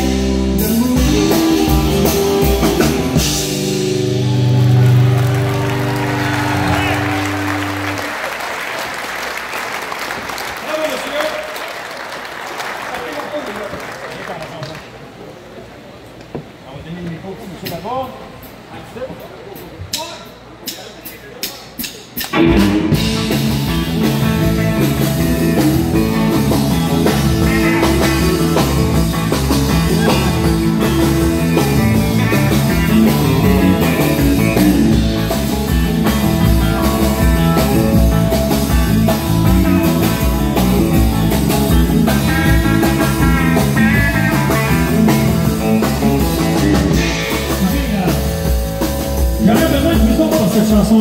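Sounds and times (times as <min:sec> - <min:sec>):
live rock band playing: 0:00.0 - 0:08.6, 0:20.2 - 0:51.0.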